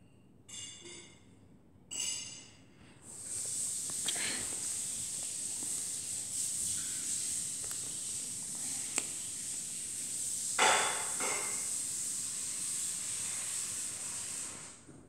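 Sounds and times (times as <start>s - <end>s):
steady high hiss: 3.0s - 14.8s.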